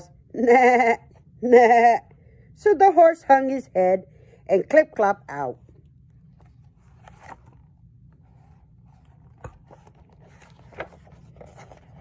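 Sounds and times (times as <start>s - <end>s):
faint low hum: 0.0s - 12.0s
book pages rustling: 5.7s - 12.0s.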